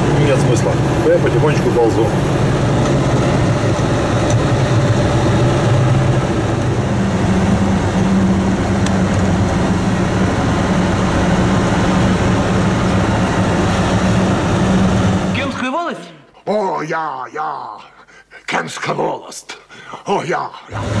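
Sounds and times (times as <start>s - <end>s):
road and tyre noise: 0.0s - 15.7s, 20.7s - 21.0s
truck engine running: 0.0s - 15.7s, 20.7s - 21.0s.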